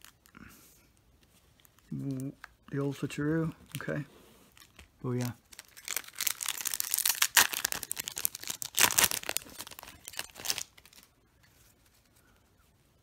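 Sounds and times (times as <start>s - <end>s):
foil wrapper crinkling and tearing: 4.5s - 11.1s.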